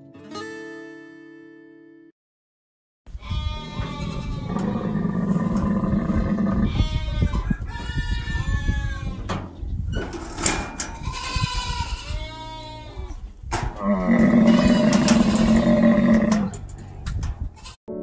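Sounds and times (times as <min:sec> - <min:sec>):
camels bleating: 0:03.2 - 0:09.4, 0:10.8 - 0:13.2, 0:13.8 - 0:16.8
metal door knocks and clanks: 0:09.1 - 0:11.0, 0:13.5 - 0:17.4.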